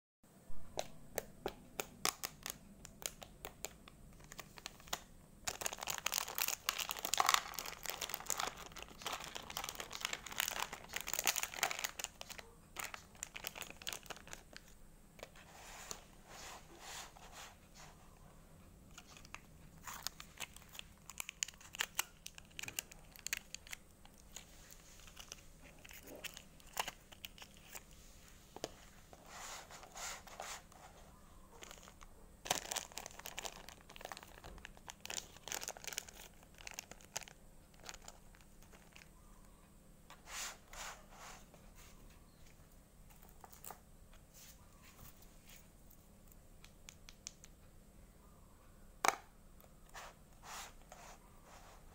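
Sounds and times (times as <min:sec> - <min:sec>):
wrapper crinkling and tearing: 0:04.2 - 0:14.7, 0:19.0 - 0:28.0, 0:31.6 - 0:39.1.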